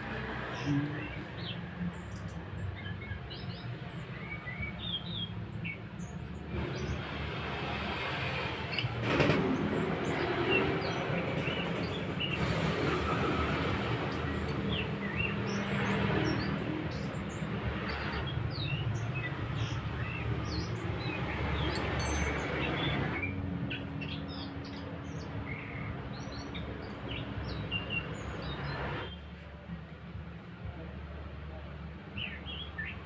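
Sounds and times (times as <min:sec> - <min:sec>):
small birds chirping: 0:00.0 - 0:30.8.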